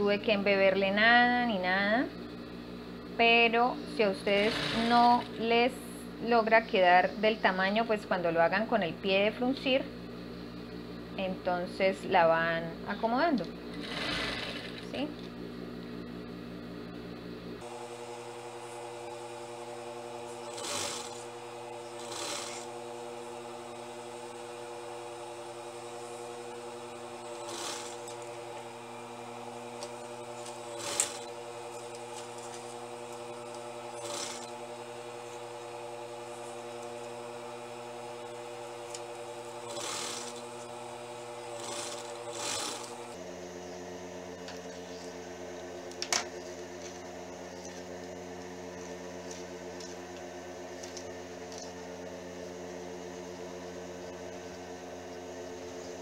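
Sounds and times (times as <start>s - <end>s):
sewing machine humming: 4.0s - 6.2s, 13.5s - 15.3s, 17.6s - 43.3s
sewing machine noisy bursts: 4.2s - 5.4s, 13.7s - 14.9s, 17.6s - 43.2s.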